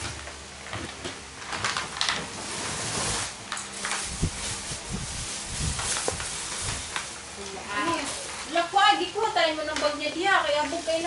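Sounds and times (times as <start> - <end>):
rustling hiss: 2.4 - 9.2.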